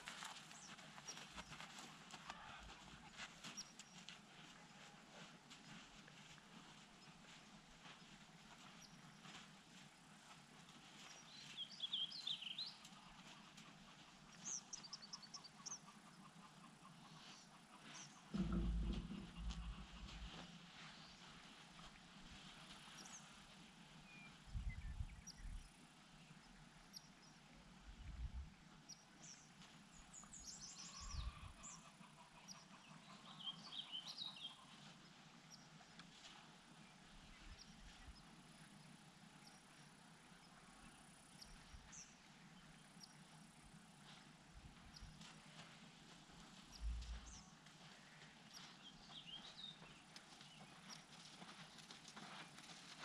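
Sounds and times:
low thumps: 18.4s - 20.3s.

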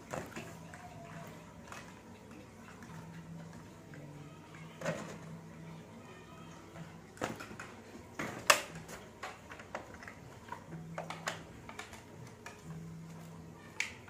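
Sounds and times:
plastic toys clicking and knocking: 7.2s - 12.8s.

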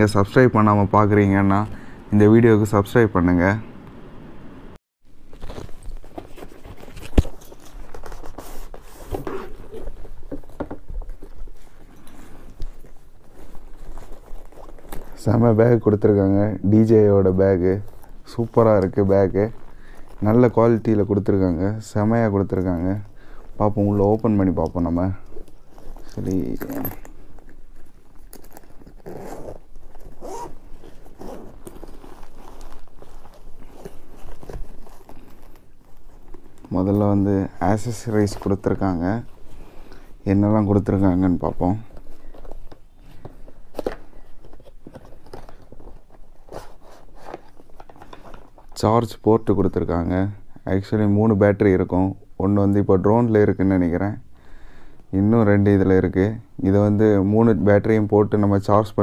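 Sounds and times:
cardboard box and bag rustling: 5.1s - 16.4s, 22.8s - 48.8s
zipper being pulled open: 5.4s - 15.5s, 25.2s - 38.6s.

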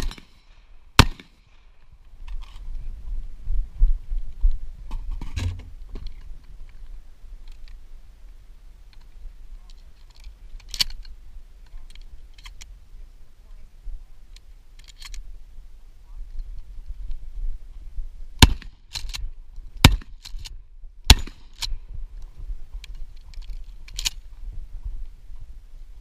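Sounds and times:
shotgun clicks and knocks: 9.7s - 11.1s, 18.4s - 21.8s, 22.8s - 24.2s.

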